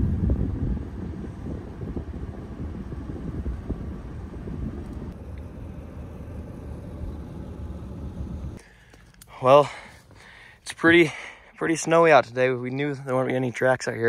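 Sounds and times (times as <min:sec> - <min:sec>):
truck rumbling from inside cab: 0:00.0 - 0:08.6.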